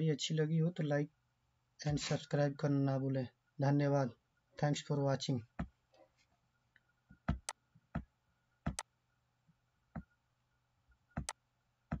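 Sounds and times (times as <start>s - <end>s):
computer mouse clicking: 8.7s - 8.9s, 11.2s - 12.0s.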